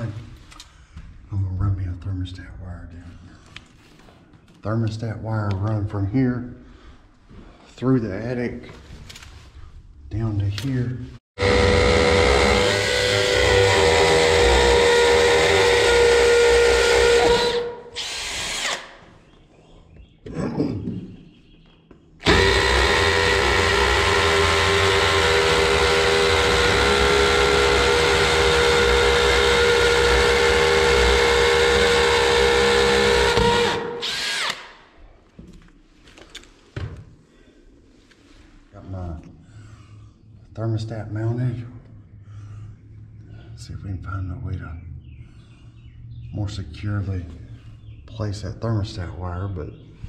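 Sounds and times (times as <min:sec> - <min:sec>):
drill boring into concrete: 0:11.4 - 0:19.0, 0:22.2 - 0:34.8.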